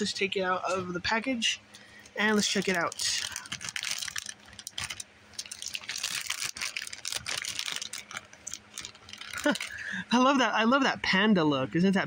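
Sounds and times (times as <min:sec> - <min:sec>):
plastic package crinkling: 0:02.1 - 0:09.9.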